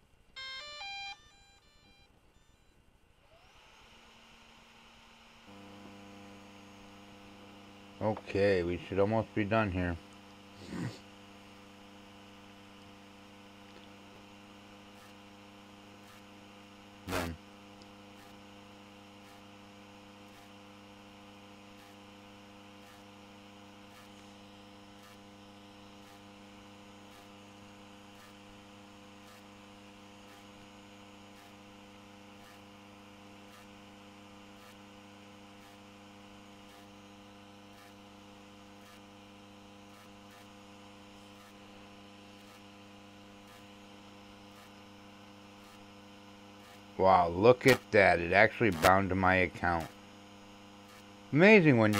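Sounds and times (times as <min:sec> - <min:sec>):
steady electrical hum: 0:00.0 - 0:51.9.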